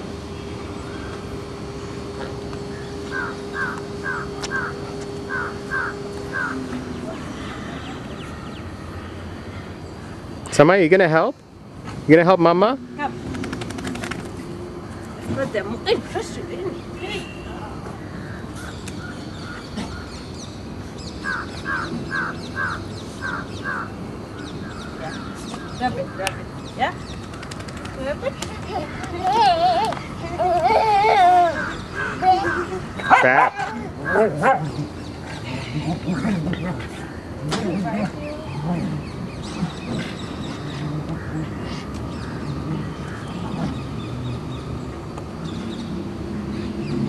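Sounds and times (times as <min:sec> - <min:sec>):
bird calling: 0:00.7 - 0:10.3, 0:16.7 - 0:44.8
crow cawing: 0:02.8 - 0:08.5, 0:21.2 - 0:24.0.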